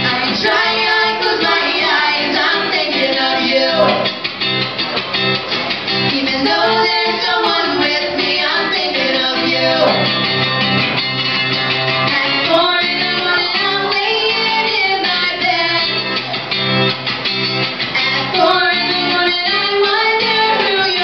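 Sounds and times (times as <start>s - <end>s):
person singing: 0.0s - 4.2s, 6.1s - 10.2s, 18.0s - 21.0s
strummed guitars: 0.0s - 21.0s.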